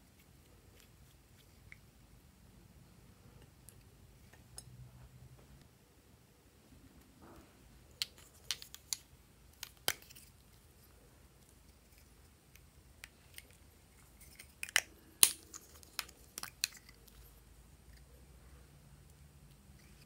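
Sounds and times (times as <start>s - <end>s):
plastic caps clicking open: 8.0s - 10.2s, 14.3s - 17.0s.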